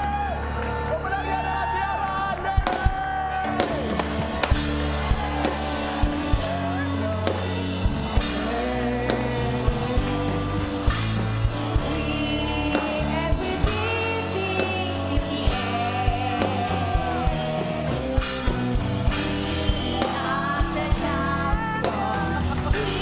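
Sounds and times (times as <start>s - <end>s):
rock music: 0.0s - 23.0s
steady drum beat: 2.5s - 23.0s
woman singing: 8.2s - 10.8s, 11.7s - 18.0s, 19.6s - 23.0s.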